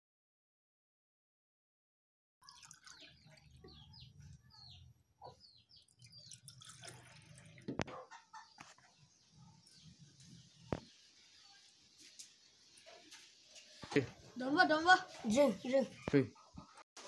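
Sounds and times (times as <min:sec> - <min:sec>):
liquid pouring into a cup: 0:02.4 - 0:04.2, 0:05.8 - 0:07.9
birds cheeping: 0:02.6 - 0:11.7.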